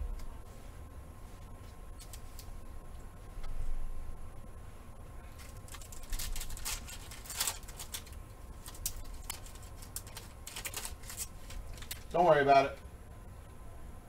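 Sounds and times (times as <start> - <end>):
foil pack crinkling and tearing: 5.4 - 12.2.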